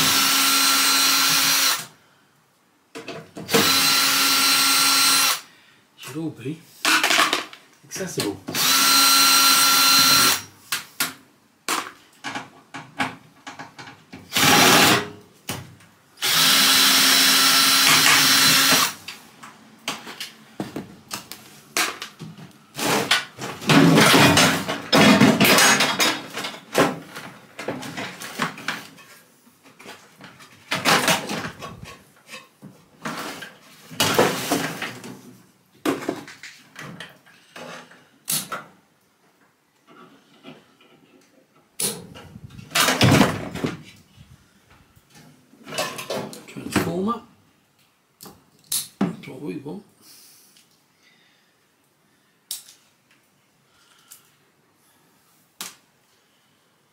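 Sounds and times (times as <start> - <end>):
cordless drill whine: 0.0 - 1.9, 3.5 - 5.4, 8.6 - 10.4, 16.2 - 19.0.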